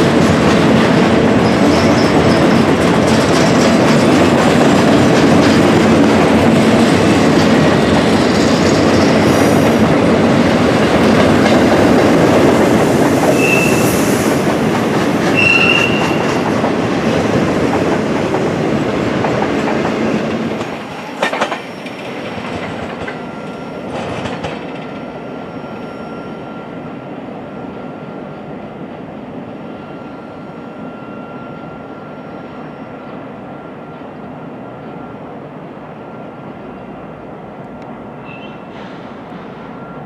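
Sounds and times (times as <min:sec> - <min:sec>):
wheels clacking over rail joints: 0:00.0 - 0:25.1
train cars rolling on rails: 0:00.0 - 0:40.0
faint wheel squeal: 0:38.2 - 0:39.0.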